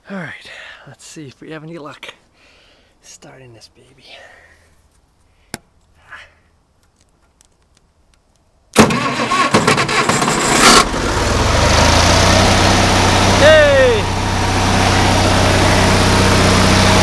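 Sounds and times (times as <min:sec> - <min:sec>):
engine starter cranking: 0:08.8 - 0:12.2
diesel engine idling: 0:10.3 - 0:17.0.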